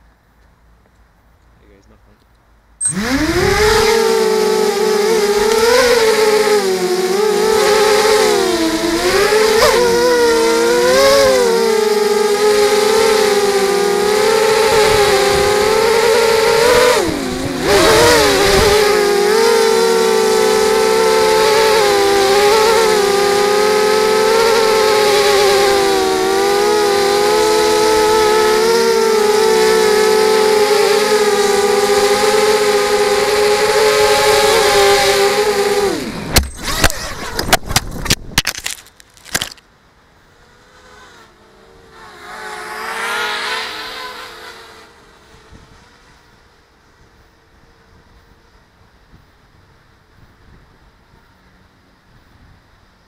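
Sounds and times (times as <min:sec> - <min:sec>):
quadcopter motors whining: 0:02.8 - 0:39.6.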